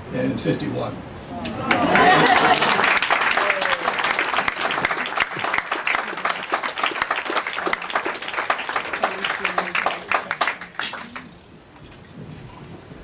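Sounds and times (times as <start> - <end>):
crowd applauding: 1.5 - 11.4
voices: 8.9 - 11.2.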